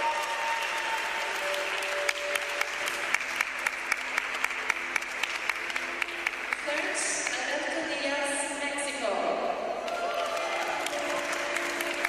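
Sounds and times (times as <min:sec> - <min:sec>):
audience applauding: 0:00.0 - 0:06.9, 0:09.8 - 0:12.0
sharp hand claps: 0:00.0 - 0:07.5, 0:09.9 - 0:12.0.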